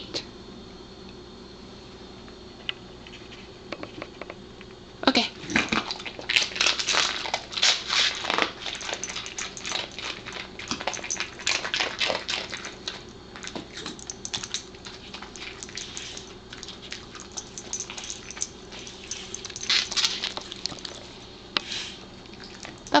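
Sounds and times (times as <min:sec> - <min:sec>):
dog crunching biscuits: 0:05.4 - 0:23.0.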